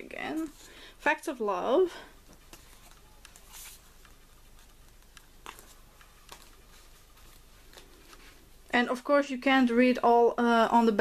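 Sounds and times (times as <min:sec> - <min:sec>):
paper sleeve rustling: 0:02.5 - 0:08.5.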